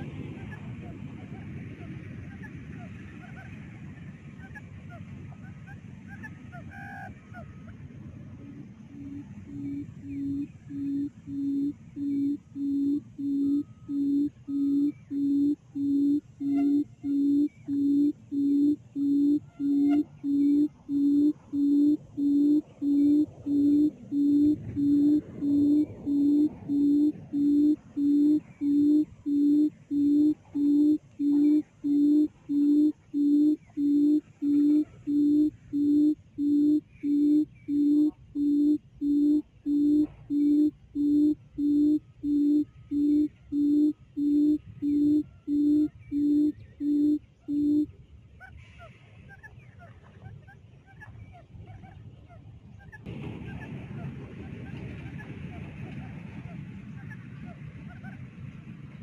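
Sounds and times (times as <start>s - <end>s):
quail call through a speaker: 0.0s - 58.2s.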